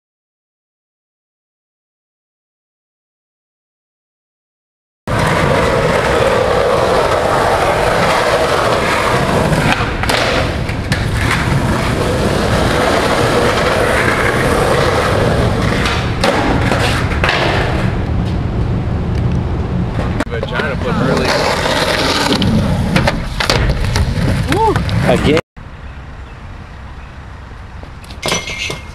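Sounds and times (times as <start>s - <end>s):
skateboard clacks: 5.1s - 18.3s, 20.0s - 25.1s
skateboard wheels rolling on concrete: 5.1s - 25.4s.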